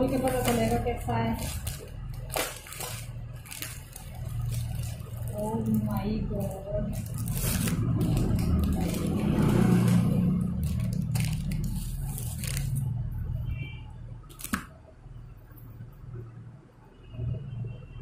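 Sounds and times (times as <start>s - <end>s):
plastic packaging crinkling: 0.0s - 13.4s, 14.3s - 14.8s
low handling rumble: 0.0s - 13.5s.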